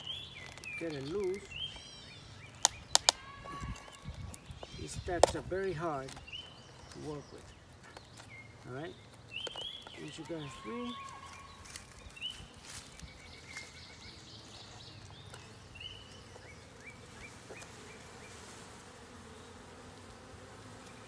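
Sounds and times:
hive tool clicks: 0.0 - 1.9, 2.5 - 8.4
honeybees buzzing: 0.0 - 21.0.

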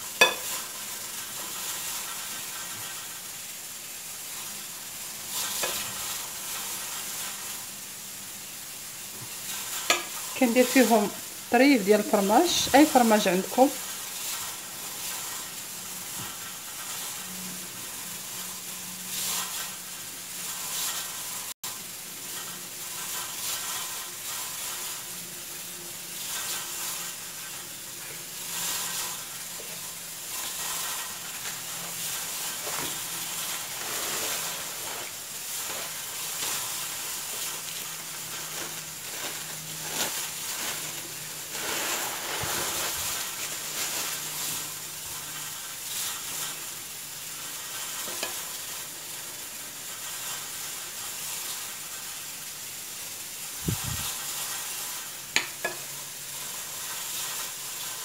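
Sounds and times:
food sizzling in a pan: 0.0 - 58.0
hands rolling pastry sheets: 32.6 - 44.9.

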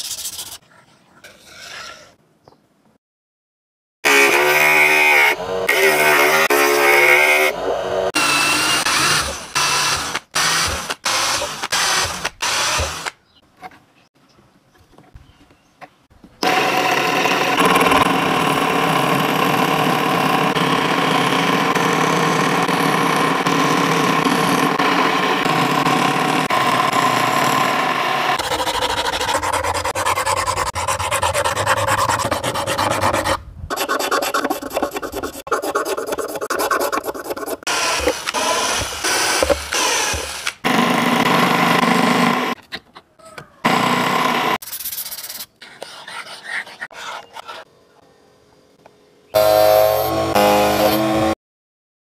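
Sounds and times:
scroll saw running: 4.1 - 13.2, 16.4 - 42.6, 49.4 - 51.4
wooden stick rasping in plastic: 28.4 - 40.6.

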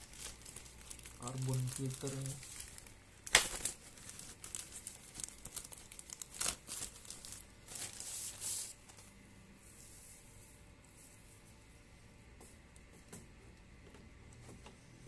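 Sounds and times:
plastic film crinkling and tearing: 0.0 - 8.8.

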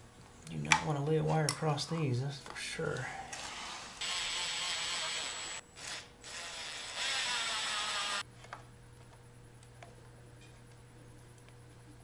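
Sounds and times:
cordless drill driving a screw: 4.0 - 8.2.

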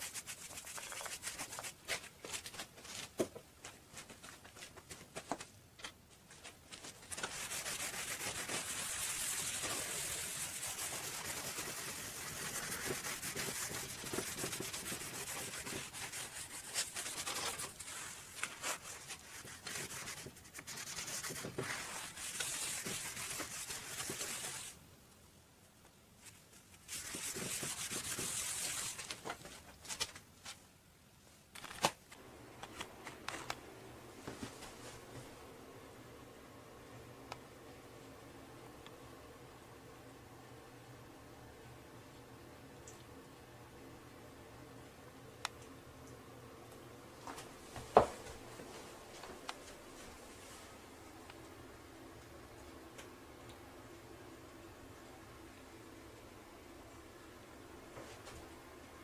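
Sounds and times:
hand rubbing wet board: 7.1 - 24.8
paintbrush strokes on wood: 7.2 - 24.8, 26.8 - 29.0.

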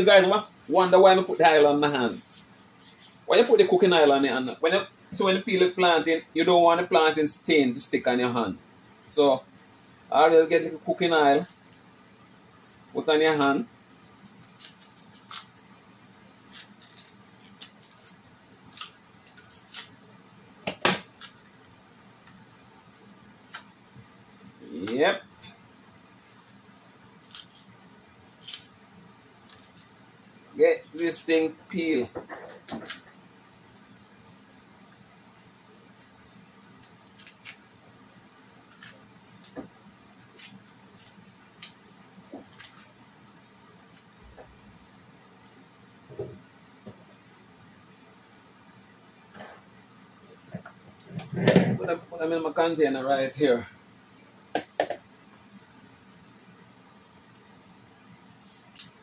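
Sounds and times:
knife scraping plantain skin: 13.8 - 15.6, 16.4 - 20.0, 21.0 - 21.5, 24.4 - 25.1, 26.1 - 28.8, 29.4 - 30.0, 36.8 - 37.6, 38.5 - 39.6, 40.2 - 41.8, 42.4 - 43.0, 57.3 - 59.0.

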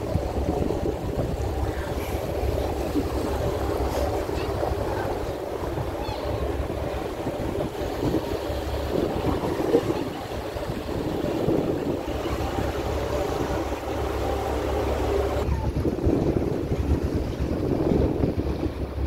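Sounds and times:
boat engine rumble: 0.0 - 19.0
water rushing past hull: 0.0 - 19.0
wind on microphone: 0.0 - 19.0.

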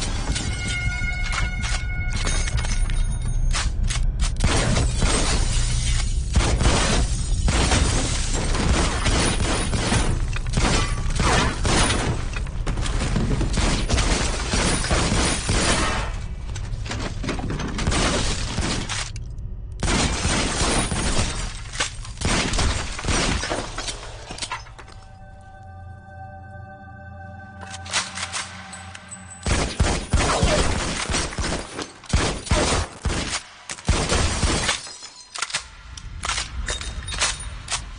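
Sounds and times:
glass shattering: 34.6 - 35.4.

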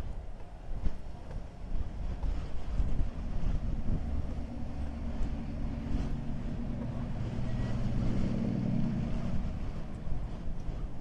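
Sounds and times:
low hum: 0.0 - 11.0
heavy engine rumbling: 1.0 - 11.0.

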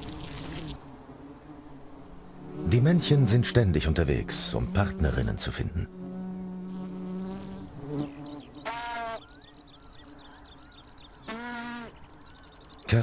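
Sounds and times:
bee wings buzzing: 0.0 - 13.0
faint birds chirping: 7.2 - 13.0.

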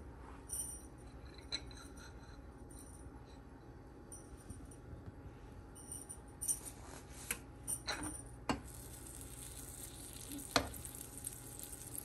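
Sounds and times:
faint butter sizzle: 8.6 - 12.0.

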